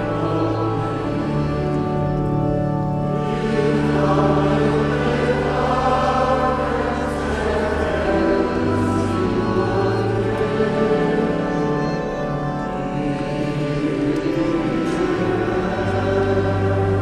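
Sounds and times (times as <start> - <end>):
choir singing held chords: 0.0 - 17.0.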